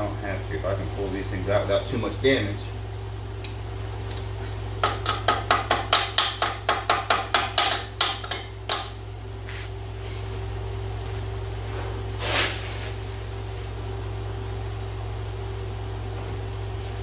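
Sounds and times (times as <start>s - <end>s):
hammer tapping on metal: 4.8s - 9.0s.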